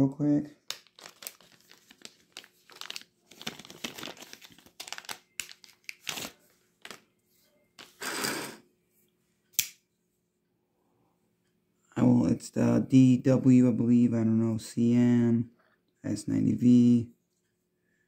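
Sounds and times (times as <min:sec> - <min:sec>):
plastic bag crinkling and tearing: 0:00.6 - 0:07.0.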